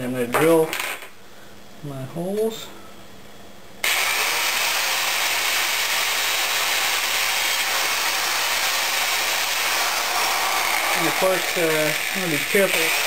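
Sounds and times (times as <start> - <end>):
power drill running: 3.8 - 13.0.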